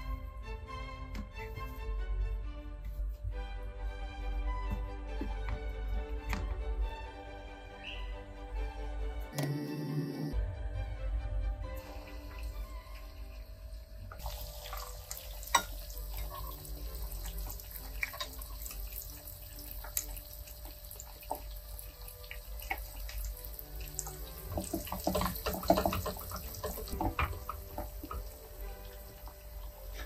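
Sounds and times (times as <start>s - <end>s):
chicken sizzling in hot oil: 11.8s - 30.0s.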